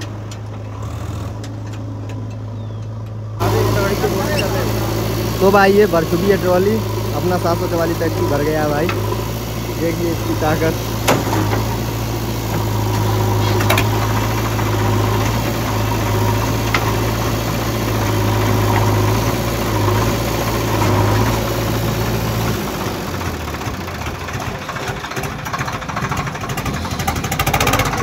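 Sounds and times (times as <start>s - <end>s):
backhoe loader engine running: 0.0s - 28.0s
tractor diesel engine: 0.0s - 28.0s.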